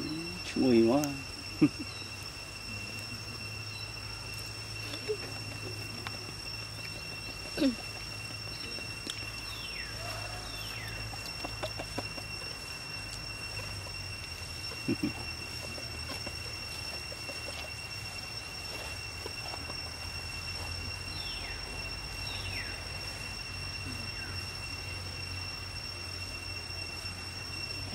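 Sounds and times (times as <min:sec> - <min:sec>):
high-pitched insect drone: 0:00.0 - 0:27.9
faint bird chirps: 0:03.0 - 0:18.9, 0:19.5 - 0:23.2.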